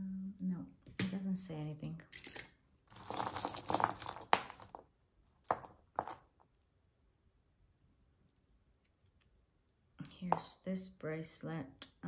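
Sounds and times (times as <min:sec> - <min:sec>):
jewelry jingling and clinking: 0:02.0 - 0:06.4.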